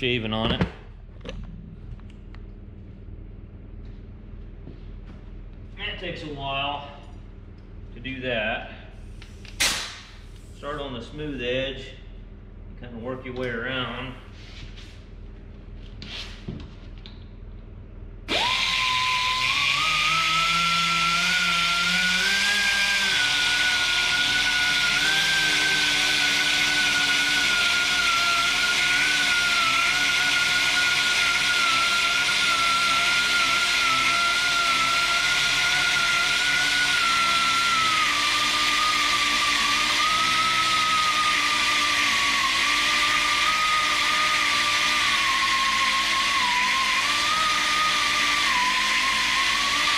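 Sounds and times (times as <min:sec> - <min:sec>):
pneumatic grinder whining: 0:18.3 - 0:49.9.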